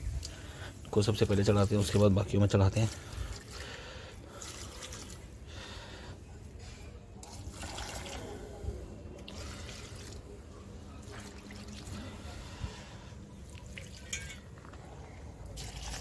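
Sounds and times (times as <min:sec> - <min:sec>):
water pouring onto soil: 0:00.2 - 0:05.5, 0:07.2 - 0:08.6, 0:09.2 - 0:10.4, 0:11.0 - 0:12.5, 0:13.4 - 0:14.6, 0:15.5 - 0:16.0.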